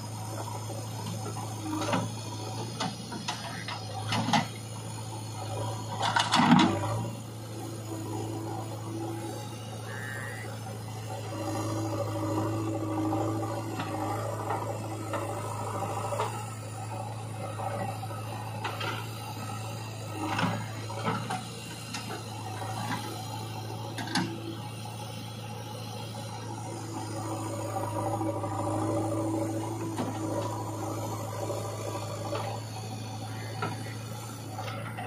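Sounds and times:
diesel engine humming: 0:00.0 - 0:35.0
hydraulic whine: 0:00.0 - 0:35.0.

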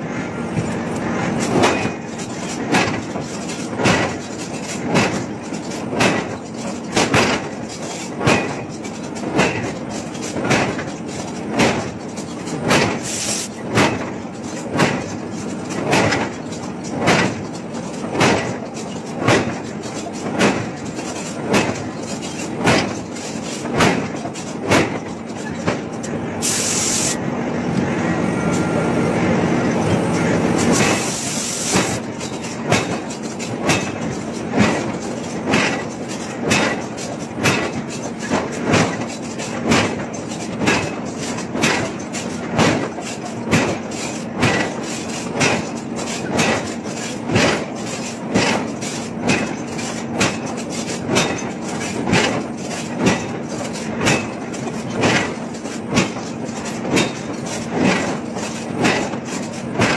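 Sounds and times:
metallic forging knocks: 0:32.0 - 0:58.2.

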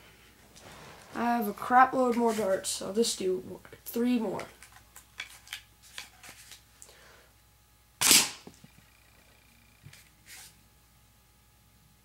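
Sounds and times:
sharp crack of dart rifle firing: 0:08.0 - 0:08.5.

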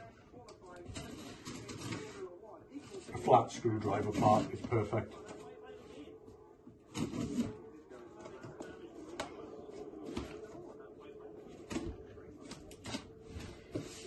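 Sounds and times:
cardboard rustling: 0:11.5 - 0:14.0.

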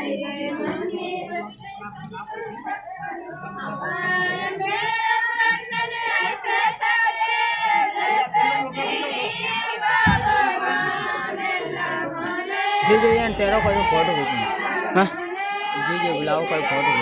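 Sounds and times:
crowd noise: 0:00.0 - 0:17.0
group singing: 0:00.0 - 0:17.0
low thump: 0:10.1 - 0:10.4, 0:12.9 - 0:14.1.

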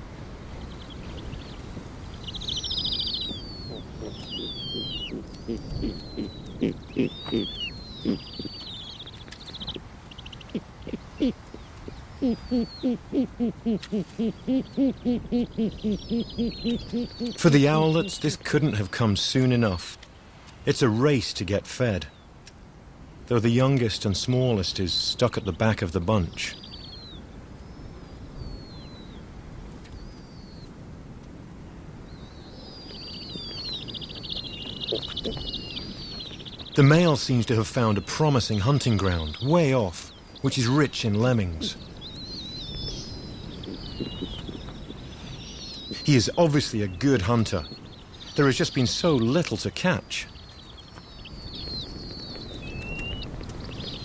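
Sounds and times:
owl high thin falling calls: 0:00.6 - 0:18.9, 0:32.1 - 0:49.5
owl low hooting notes: 0:00.6 - 0:18.9, 0:32.1 - 0:49.4.

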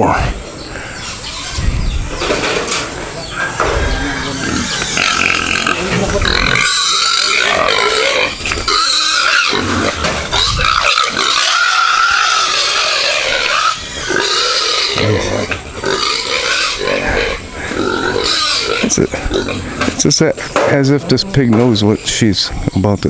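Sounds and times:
pig squealing: 0:00.8 - 0:02.5, 0:03.3 - 0:20.0.

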